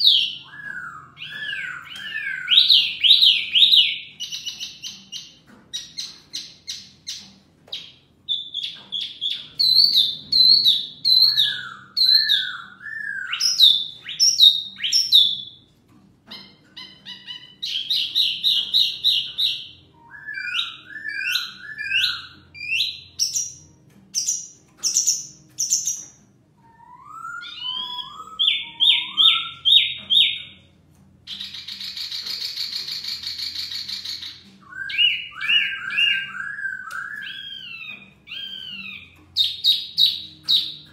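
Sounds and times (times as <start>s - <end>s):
bird singing varied phrases: 0.0s - 15.7s, 16.3s - 40.9s.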